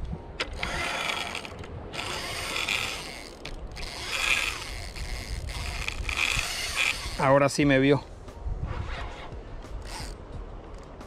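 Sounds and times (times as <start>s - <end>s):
fishing reel whirring and clicking: 0.4s - 7.3s, 9.8s - 10.2s.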